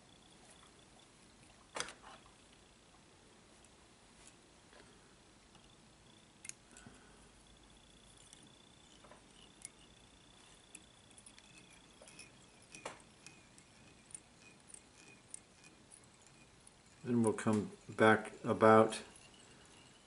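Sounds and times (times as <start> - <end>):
faint high whine: 0.0 - 20.0
fly-tying tool clicks: 6.4 - 6.9.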